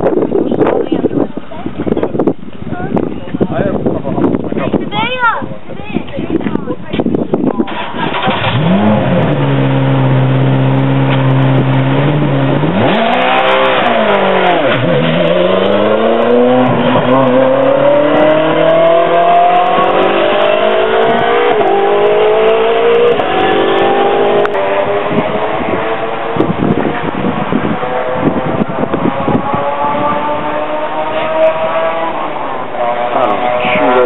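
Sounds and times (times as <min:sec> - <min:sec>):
race car engine revving: 0:07.7 - 0:34.0.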